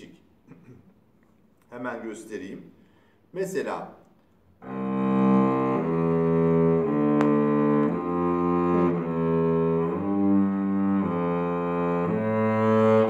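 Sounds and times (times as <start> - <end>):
solo cello bowed notes: 4.6 - 13.0.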